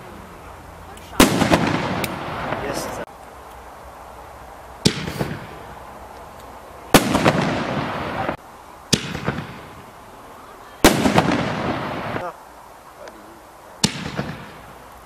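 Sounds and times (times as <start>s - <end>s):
firework stars crackling and fizzing: 0.0s - 15.0s
firework bursting bang: 1.1s - 3.1s, 4.8s - 5.7s, 6.9s - 10.0s, 10.8s - 12.3s, 13.8s - 14.8s
firework launch thump: 4.8s - 5.6s, 7.0s - 9.9s, 13.8s - 14.6s.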